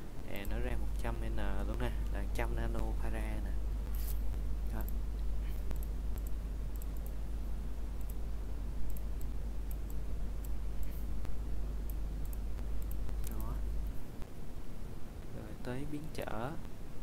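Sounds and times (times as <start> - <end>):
low steady hum: 0.0 - 17.0
computer mouse clicking: 4.8 - 7.2, 8.0 - 8.2, 8.8 - 14.0.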